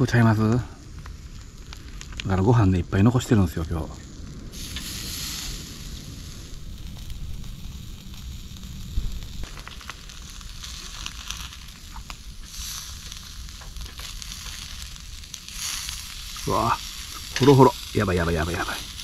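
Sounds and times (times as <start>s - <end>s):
salmon sizzling on grill: 0.0s - 19.0s.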